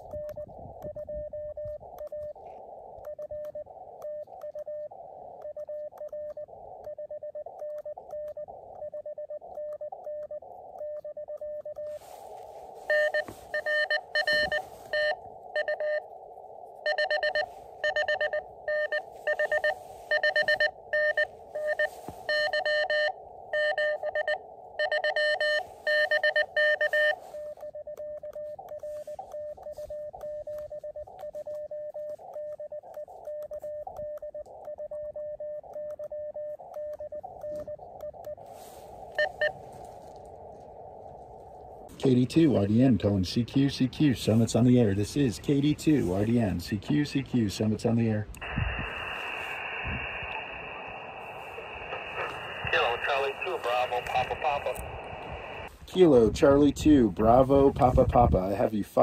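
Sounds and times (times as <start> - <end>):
quiet morse code tone: 0.0 - 59.0
receiver hiss: 0.0 - 59.0
loud buzzy morse code tone: 12.9 - 16.1, 16.8 - 39.8.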